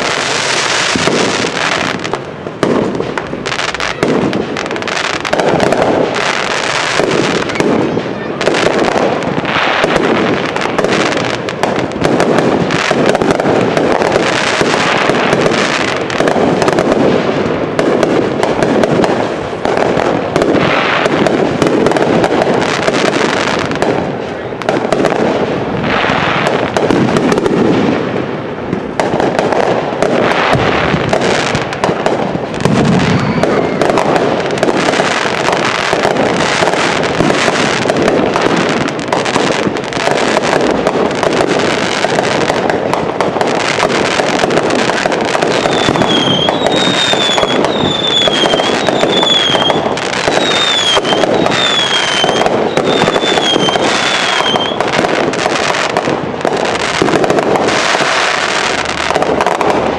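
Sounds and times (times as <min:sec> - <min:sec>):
fireworks bangs and crackling: 0:00.0 - 0:59.9
falling firework whistles: 0:32.6 - 0:37.9, 0:43.8 - 0:55.8.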